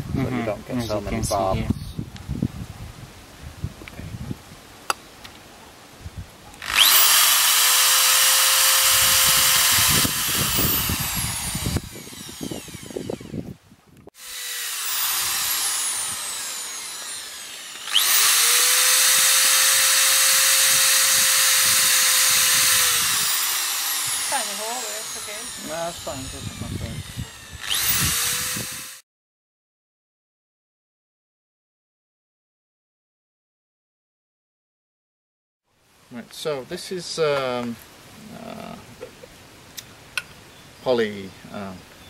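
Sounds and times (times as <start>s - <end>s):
power drill boring through metal: 6.6s - 13.5s, 14.1s - 29.0s.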